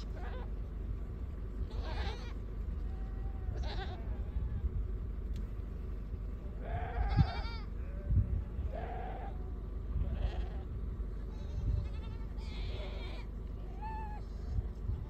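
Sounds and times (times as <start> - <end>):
steady low rumble: 0.0 - 15.0
goats and sheep bleating: 1.6 - 4.6, 6.5 - 14.6.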